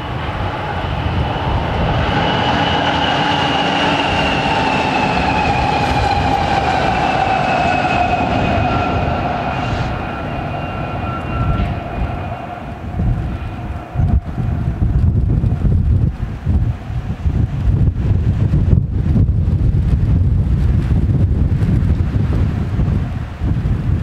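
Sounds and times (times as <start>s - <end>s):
diesel locomotive engines: 0.0s - 18.5s
train wheels rumbling on rail: 0.0s - 24.0s.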